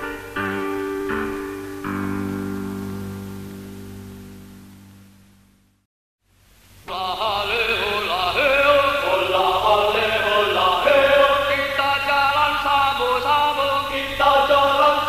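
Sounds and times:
guitar music: 0.0s - 5.2s
group of voices singing: 6.9s - 15.0s.

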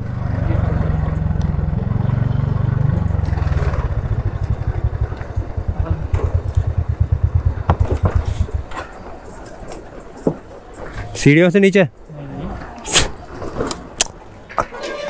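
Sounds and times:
scooter engine running: 0.0s - 9.2s.

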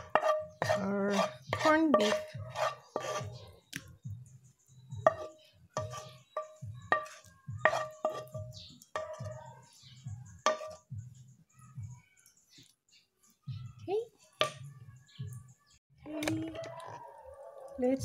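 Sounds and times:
wooden spatula scraping a pan: 0.0s - 3.5s, 5.0s - 10.9s
spatula tapping on pan and saucer: 5.0s - 9.4s, 10.4s - 10.9s.

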